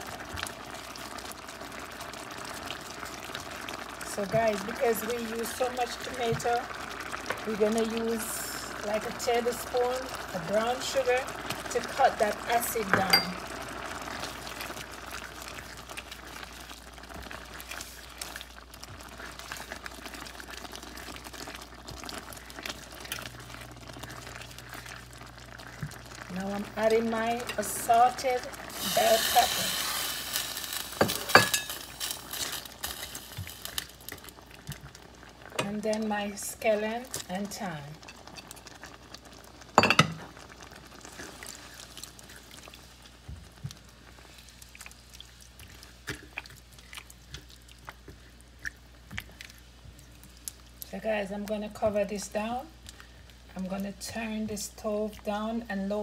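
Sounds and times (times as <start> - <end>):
sauce bubbling in a pan: 0.0 - 56.0
spoon tapping pan: 12.9 - 13.4, 39.8 - 40.2
spoon stirring sauce sloshing: 44.2 - 50.4.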